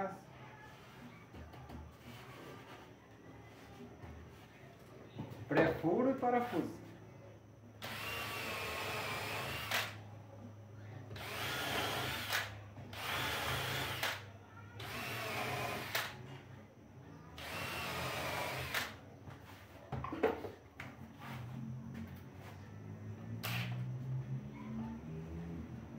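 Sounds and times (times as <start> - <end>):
cordless drill whining: 7.8 - 9.9, 11.2 - 14.2, 14.8 - 16.1, 17.4 - 18.9.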